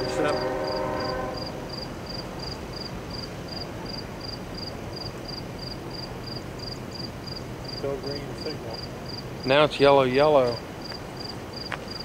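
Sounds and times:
insect chirping: 0.0s - 9.6s, 10.4s - 12.0s.

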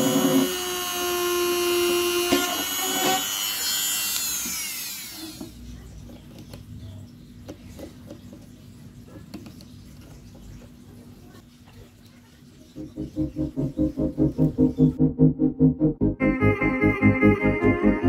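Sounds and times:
rotary tool whining: 0.0s - 5.6s.

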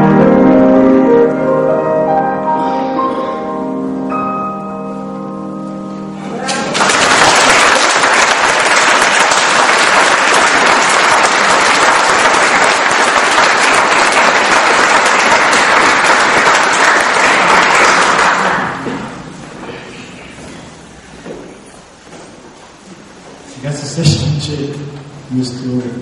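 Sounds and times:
audience applauding: 6.4s - 19.2s.

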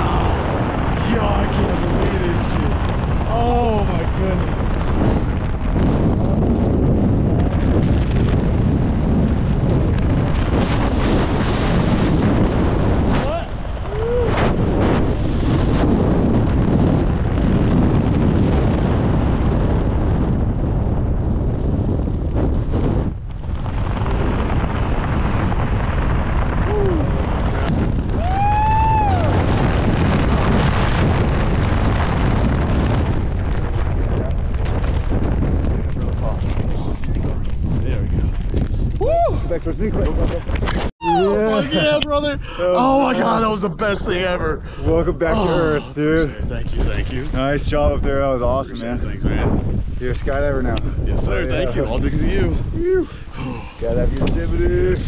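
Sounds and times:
wind buffeting the microphone: 0.0s - 55.0s
high whoop: 13.8s - 14.5s, 26.7s - 27.2s, 28.1s - 29.5s, 38.9s - 39.5s, 41.0s - 41.4s, 52.8s - 53.2s.

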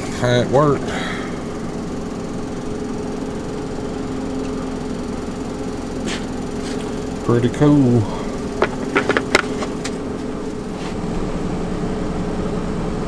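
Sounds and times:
engine idling hum: 0.0s - 13.0s.

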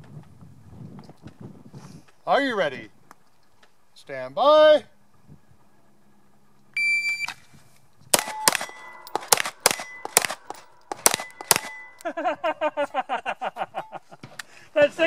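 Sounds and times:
pistol shots: 8.1s - 12.0s
steel targets clanging: 8.2s - 12.2s.

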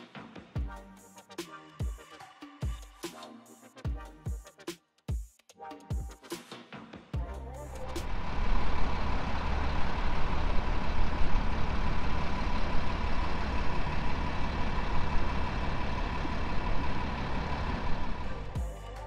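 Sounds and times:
vehicles and trucks passing: 7.4s - 19.0s.

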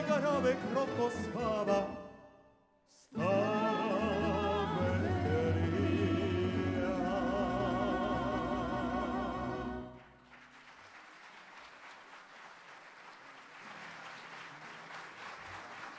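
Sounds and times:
string orchestra playing: 0.0s - 2.1s
audience applause: 9.8s - 15.9s.

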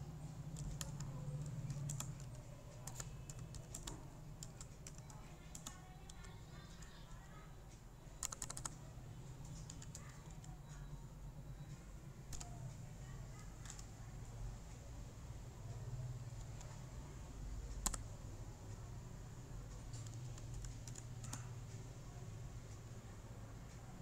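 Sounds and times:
keyboard typing clicks: 0.5s - 7.2s, 8.2s - 10.9s, 11.6s - 12.8s, 13.4s - 13.9s, 16.3s - 16.9s, 17.7s - 18.1s, 19.7s - 21.5s.

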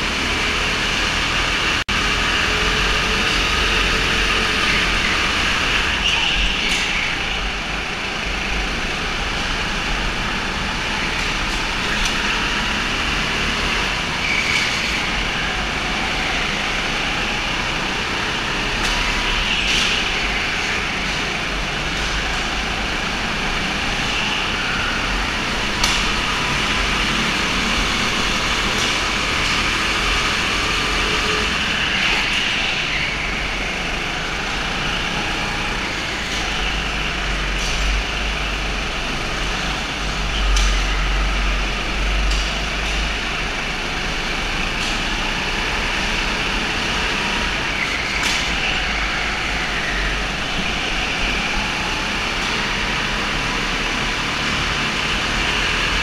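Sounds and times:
go-kart engines running: 0.0s - 56.0s.

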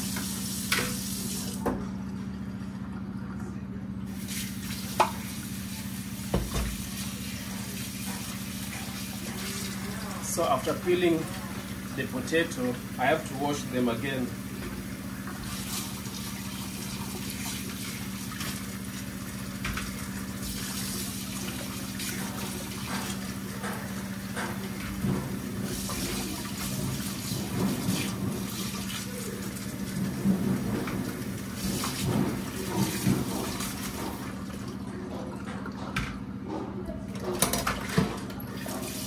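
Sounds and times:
tap running into sink: 4.9s - 5.2s, 6.3s - 6.9s, 19.6s - 20.6s.

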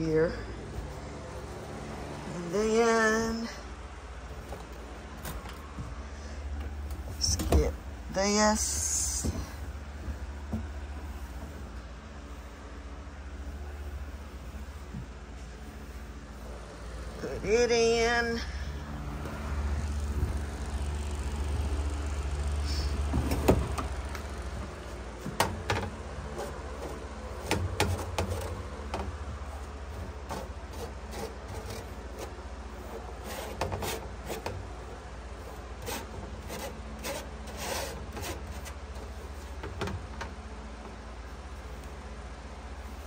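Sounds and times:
low steady hum: 0.0s - 43.0s
fingers scraping lint screen: 29.5s - 34.5s.

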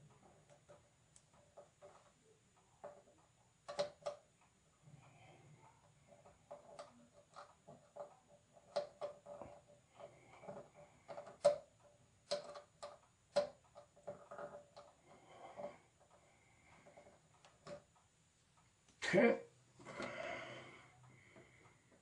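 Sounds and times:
small clicks and taps of wiring: 10.4s - 15.0s.

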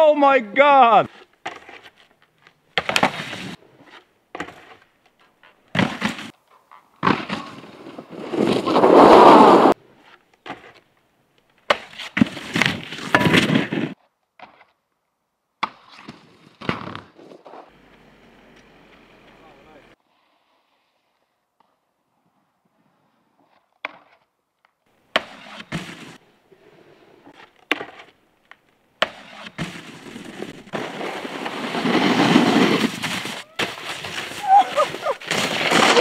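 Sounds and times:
snowboard scraping on snow and rail: 0.8s - 2.2s, 2.8s - 4.9s, 5.7s - 6.4s, 7.0s - 10.8s, 11.7s - 14.7s, 15.8s - 17.8s, 20.0s - 23.7s, 25.2s - 28.2s, 29.0s - 36.0s.

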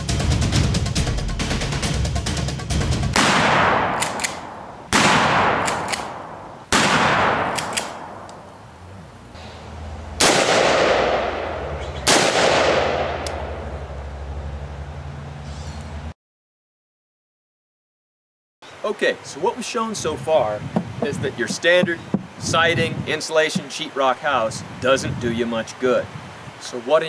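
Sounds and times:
echoing gunshots: 3.1s - 8.5s, 10.2s - 13.8s
low steady hum: 3.9s - 16.1s.

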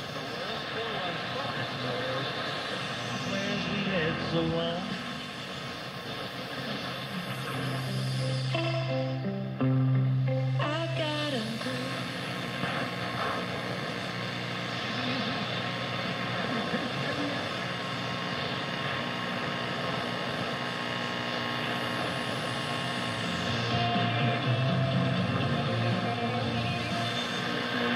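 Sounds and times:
radio music: 0.0s - 27.9s
radio static hiss: 0.0s - 27.9s
falling radio whistle: 22.0s - 27.9s.

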